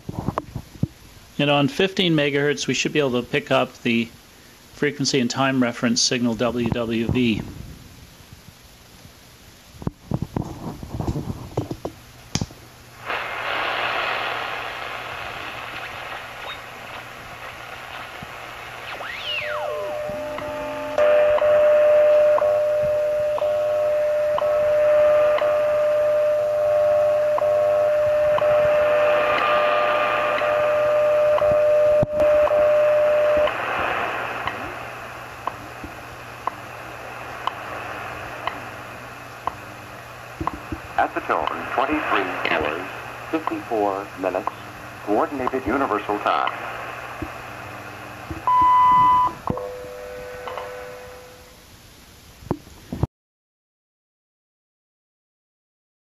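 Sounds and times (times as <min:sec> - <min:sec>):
shortwave receiver static hiss: 0:00.0 - 0:53.1
steady radio tone: 0:13.0 - 0:51.3.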